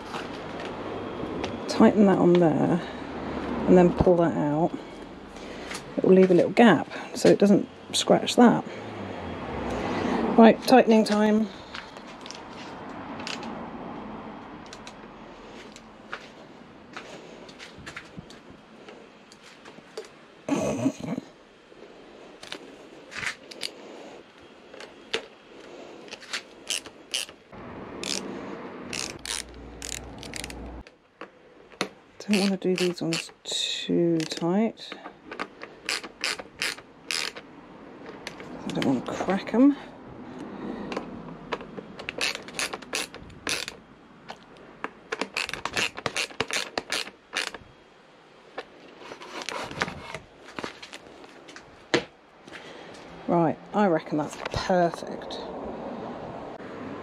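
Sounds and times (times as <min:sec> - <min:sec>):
ratchet screwdriver clicking: 0:26.7 - 0:27.4, 0:28.0 - 0:28.3, 0:28.9 - 0:30.6, 0:32.3 - 0:33.3, 0:35.8 - 0:37.4, 0:42.0 - 0:43.8, 0:45.2 - 0:47.6
handling rustle: 0:48.5 - 0:52.7.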